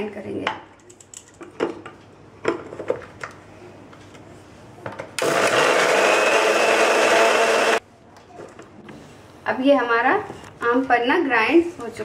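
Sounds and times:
mixer grinder motor whirring: 0:05.2 - 0:07.8.

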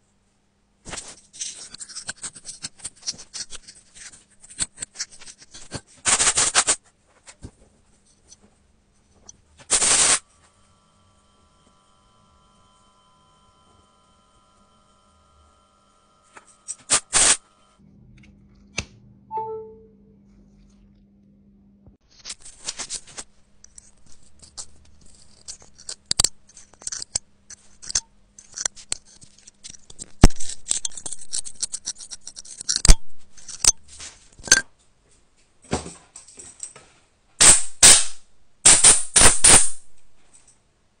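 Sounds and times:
metal pick scraping charging port: 0:23.7 - 0:33.8.

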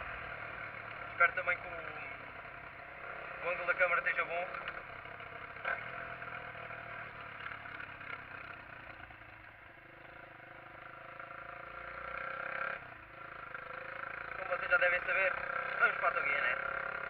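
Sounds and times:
motorcycle engine: 0:00.0 - 0:17.0.

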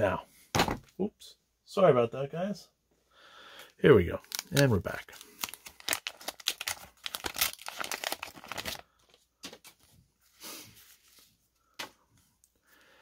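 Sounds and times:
paper wrapper tearing and crinkling: 0:04.2 - 0:09.0
cards rustling: 0:04.2 - 0:09.9.

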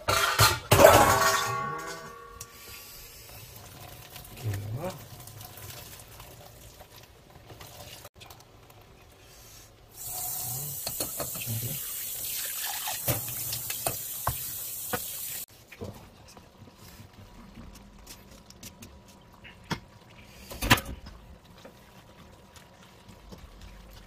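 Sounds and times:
tap water running into sink: 0:10.0 - 0:15.5.

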